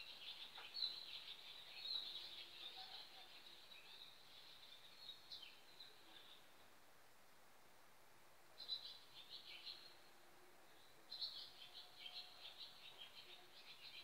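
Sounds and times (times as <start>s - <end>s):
songbird twittering: 8.6s - 10.0s.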